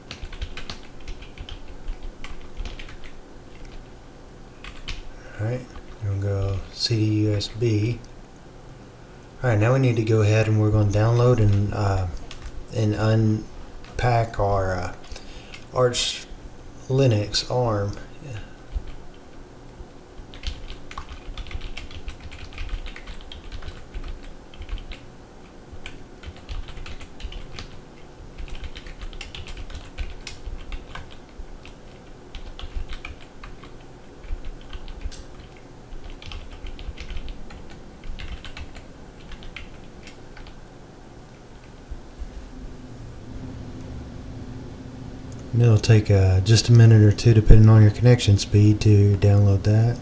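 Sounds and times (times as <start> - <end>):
faint low hum: 0.0 - 50.0
keyboard typing: 0.1 - 3.8, 4.6 - 5.0, 10.9 - 12.6, 20.2 - 40.6.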